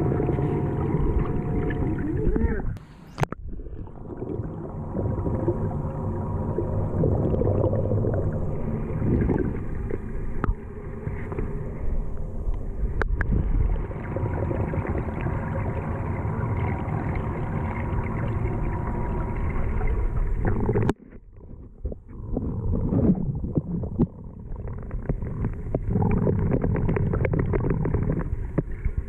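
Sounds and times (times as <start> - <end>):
faint hum: 0.0 - 29.0
underwater rumbling wash: 0.0 - 29.0.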